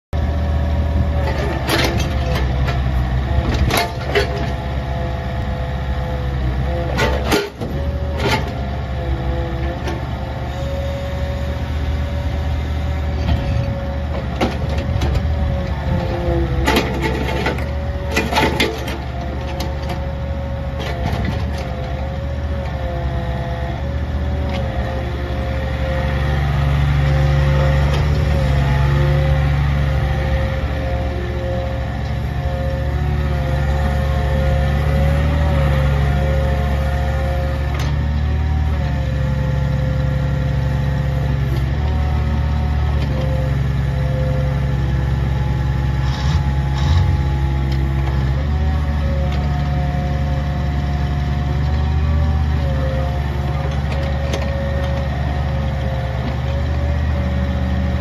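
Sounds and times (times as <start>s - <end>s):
diesel engine running under load: 0.1s - 58.0s
metallic clanks of excavator arm: 1.2s - 4.6s, 6.8s - 8.7s, 13.1s - 15.3s, 15.9s - 20.0s, 20.8s - 22.0s.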